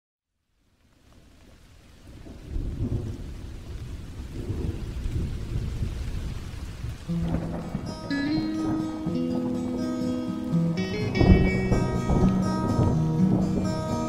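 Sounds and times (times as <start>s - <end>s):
steady rain: 0.3s - 14.0s
low rumbling thunder: 2.0s - 10.0s, 10.8s - 14.0s.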